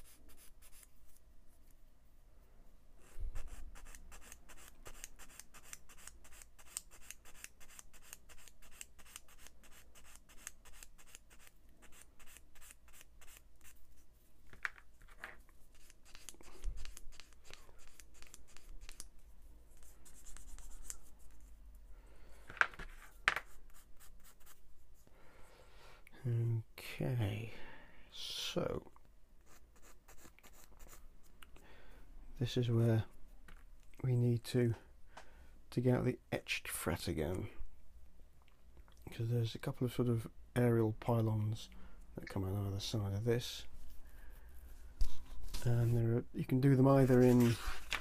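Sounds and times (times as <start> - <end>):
sanding stick rasping on plastic: 3.1 - 13.8.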